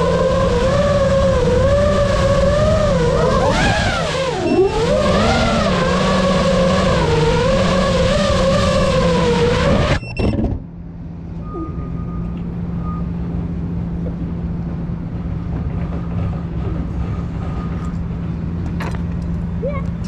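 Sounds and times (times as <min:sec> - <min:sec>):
quadcopter motors whining: 0:00.0 - 0:10.0
faint high beep: 0:11.4 - 0:13.2.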